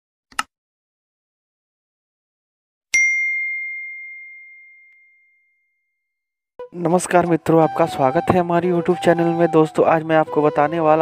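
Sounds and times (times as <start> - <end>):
bell ding: 3.0 - 5.9.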